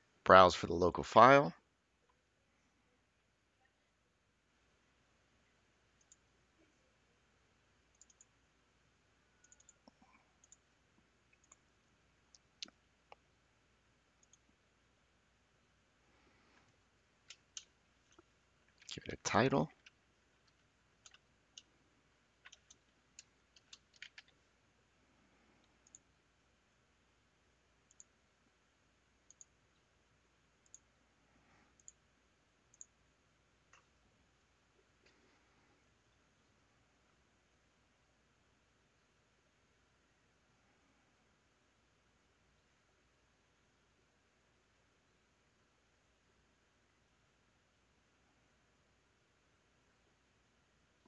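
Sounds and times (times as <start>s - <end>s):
computer mouse clicks: 6.0s - 6.3s, 7.9s - 8.4s, 9.4s - 10.7s, 11.3s - 11.7s, 14.2s - 14.5s, 16.6s - 18.9s, 19.8s - 21.7s, 22.4s - 24.4s, 25.6s - 26.1s, 27.8s - 28.2s, 29.2s - 29.9s, 30.6s - 30.9s, 31.7s - 32.0s, 32.7s - 33.0s, 33.6s - 34.0s.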